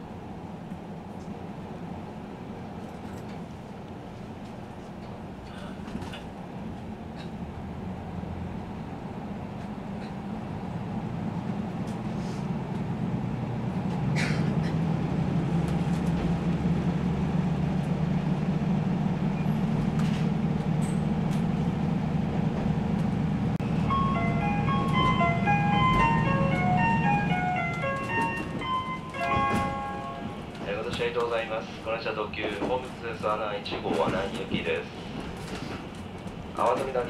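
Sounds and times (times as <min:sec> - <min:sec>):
diesel train engine drone: 0:00.0 - 0:37.0
onboard chime melody: 0:23.8 - 0:30.4.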